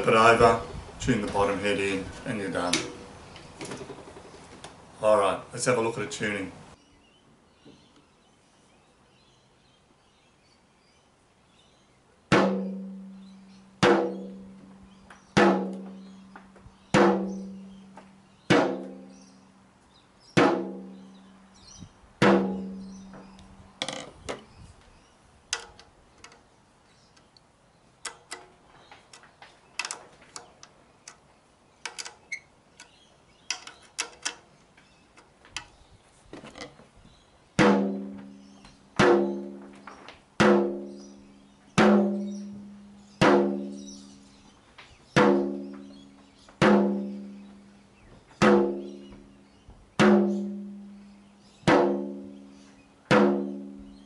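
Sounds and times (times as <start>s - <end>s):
tom drum hits: 12.3s - 13.1s, 13.8s - 14.5s, 15.4s - 16.0s, 16.9s - 17.6s, 18.5s - 19.1s, 20.4s - 21.1s, 22.2s - 23.2s, 37.6s - 38.4s, 39.0s - 39.7s, 40.4s - 41.0s, 41.8s - 43.8s, 45.2s - 47.4s, 48.4s - 49.3s, 50.0s - 50.9s, 51.7s - 52.3s, 53.1s - 53.9s.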